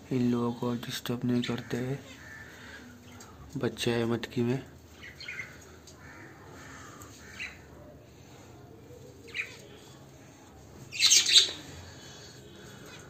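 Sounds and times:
budgerigars chirping and squawking: 0:05.0 - 0:07.7, 0:10.9 - 0:11.7.

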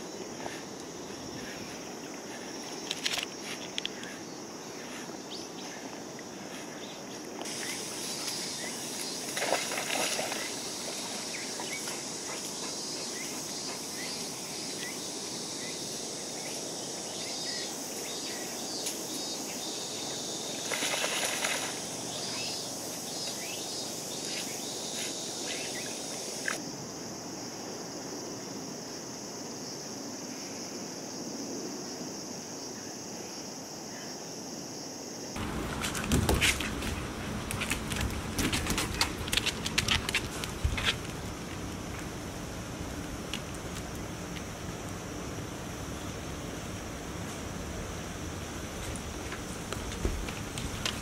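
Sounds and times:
insects droning: 0:00.0 - 0:51.0
dogs splashing in water: 0:07.5 - 0:13.2, 0:20.6 - 0:22.3, 0:35.4 - 0:41.4.

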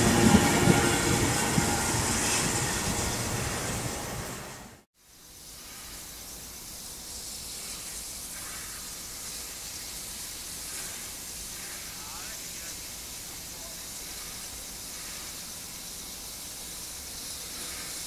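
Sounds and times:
passing train rumble: 0:00.0 - 0:04.9
steam locomotive hissing: 0:00.0 - 0:18.0.

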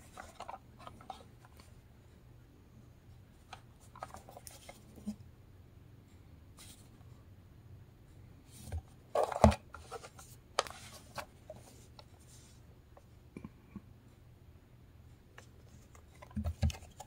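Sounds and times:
plastic casing handling noise: 0:00.0 - 0:01.7, 0:03.5 - 0:05.1, 0:08.6 - 0:11.7, 0:15.7 - 0:17.0.

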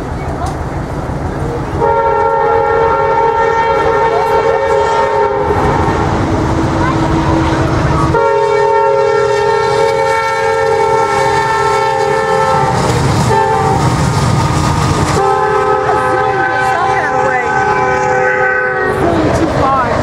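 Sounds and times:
train rumble and wheel clatter: 0:00.0 - 0:20.0
locomotive air horn blasts: 0:01.8 - 0:06.2, 0:07.1 - 0:13.9, 0:15.2 - 0:19.0.

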